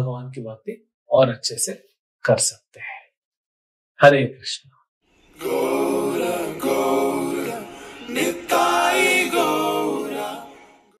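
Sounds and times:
voices singing a chant: 5.3 - 11.0.

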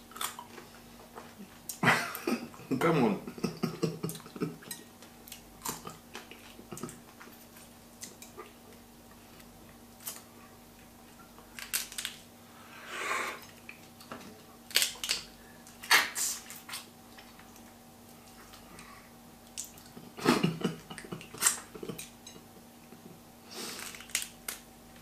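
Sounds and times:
crayfish shells cracking: 11.4 - 12.2, 13.8 - 16.6, 23.8 - 24.7
breathy rush of noise: 12.5 - 13.5.

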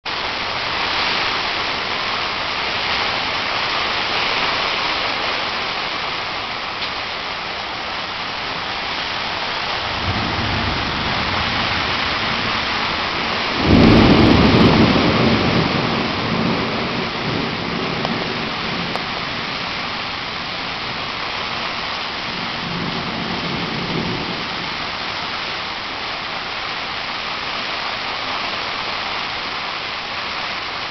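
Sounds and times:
wind gusts rumbling on microphone: 0.1 - 27.0
strong wind blowing: 0.6 - 24.8.

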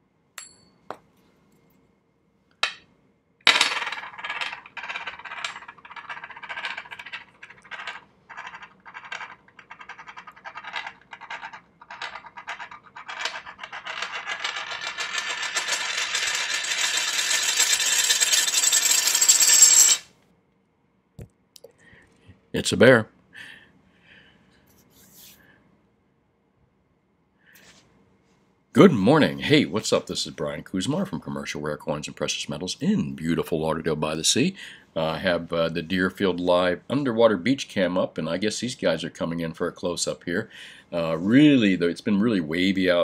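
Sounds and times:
coin clacking: 3.5 - 20.1
spinning coin rattling and whirring: 3.5 - 20.1.

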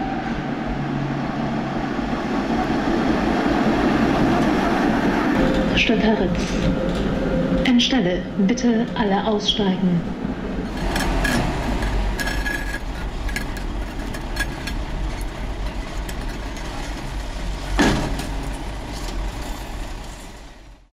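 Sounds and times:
tram wheels rumbling on rails: 0.0 - 20.9
loud metallic clank: 10.7 - 19.8.

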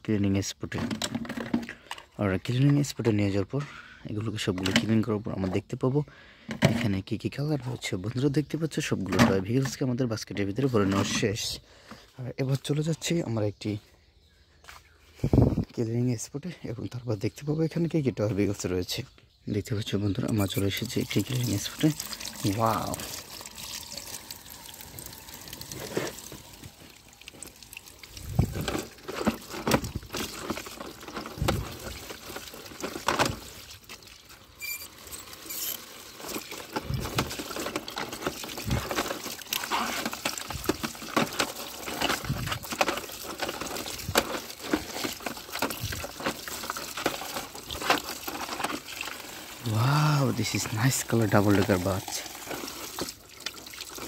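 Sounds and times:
toys knocking and clattering: 0.7 - 2.8, 28.2 - 33.6, 36.2 - 48.9
water pouring into plastic bucket: 20.2 - 54.0.

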